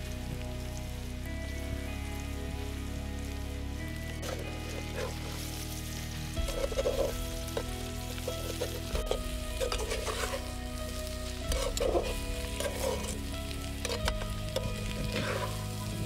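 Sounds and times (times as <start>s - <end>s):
banana sizzling in a pan: 0.0s - 16.0s
spatula scraping a pan: 4.2s - 5.6s, 6.4s - 10.6s, 11.4s - 15.8s.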